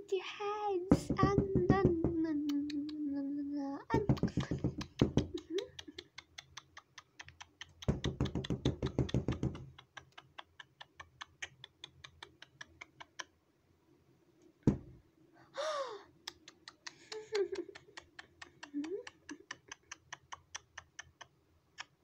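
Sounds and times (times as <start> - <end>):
fingers tapping hard surface: 0.9 - 3.0, 3.9 - 13.2
thump: 14.7 - 14.9.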